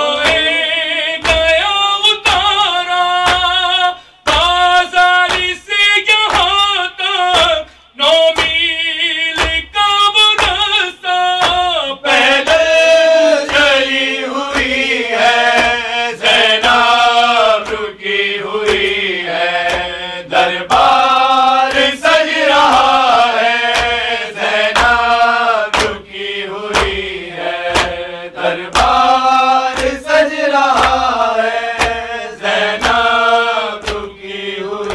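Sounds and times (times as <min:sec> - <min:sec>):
man chanting into a microphone: 0:00.0 - 0:34.9
group of voices chanting: 0:12.0 - 0:34.9
steady thumps: 0:27.7 - 0:28.0.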